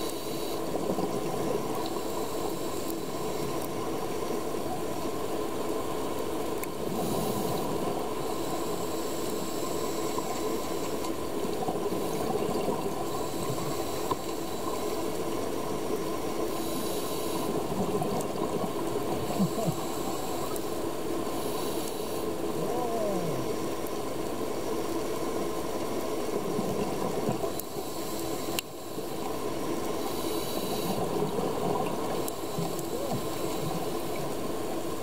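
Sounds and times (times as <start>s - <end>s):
underwater hum and rushing: 0.0s - 35.0s
regulator breath hiss: 19.3s - 22.3s, 30.0s - 31.0s.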